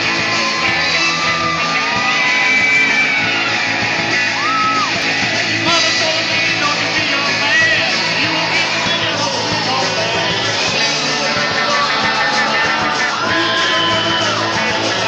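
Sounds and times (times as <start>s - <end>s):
rock band playing live: 0.0s - 15.0s
person singing long sliding notes: 5.7s - 15.0s.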